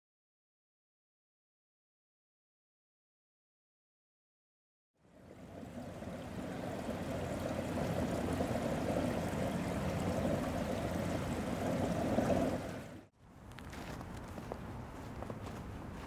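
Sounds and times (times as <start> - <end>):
fountain water running: 5.0 - 13.1
footsteps in snow: 13.4 - 16.0.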